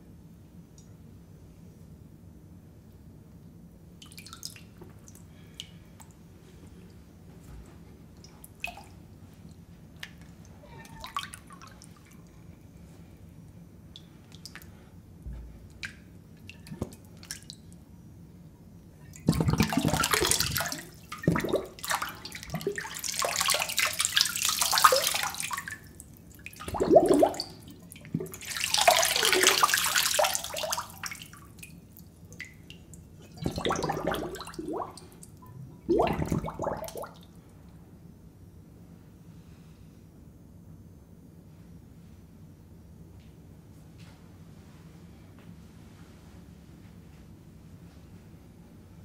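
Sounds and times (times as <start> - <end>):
small water drips: 4.0 - 7.0, 8.1 - 12.5, 13.9 - 14.8, 15.6 - 17.9, 19.0 - 37.5
hands splashing in water: 19.2 - 25.8, 26.4 - 31.3, 33.4 - 35.0.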